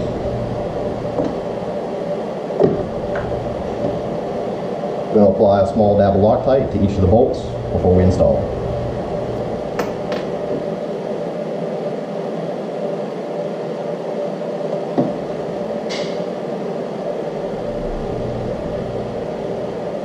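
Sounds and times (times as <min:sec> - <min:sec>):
mechanical room hum: 0:00.0 - 0:20.0
knock on workbench: 0:15.0 - 0:15.2.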